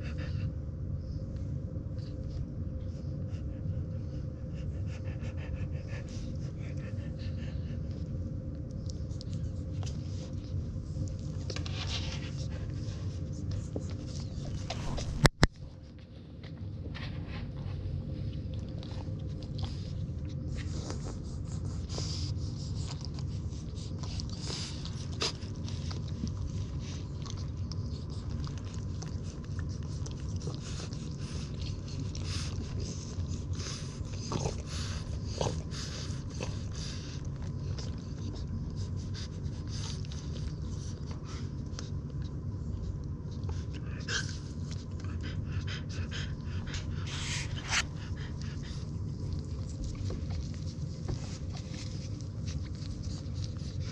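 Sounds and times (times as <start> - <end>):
steady low rumble: 0.0 - 53.9
puppies suckling wet clicks: 22.2 - 53.9.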